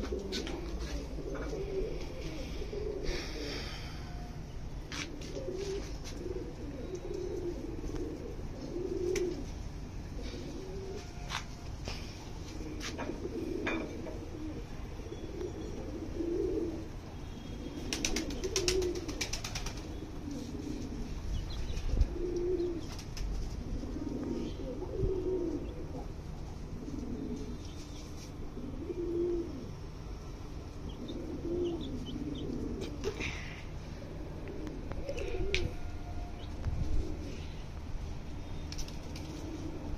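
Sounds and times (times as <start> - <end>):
pigeons cooing: 0.0 - 38.2, 38.9 - 39.9
wings flapping: 17.8 - 19.9, 22.8 - 23.7, 38.7 - 39.7.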